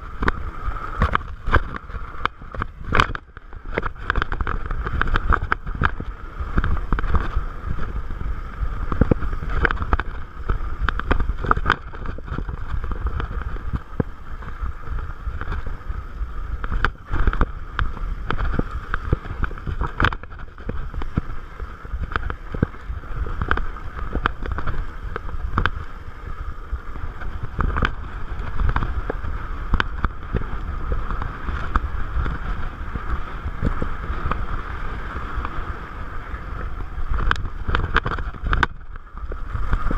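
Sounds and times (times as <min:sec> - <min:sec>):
bike rattling and knocking: 0:00.0 - 0:39.9
bike rolling on dirt trail: 0:00.0 - 0:39.9
wind rumbling on microphone: 0:00.0 - 0:39.9.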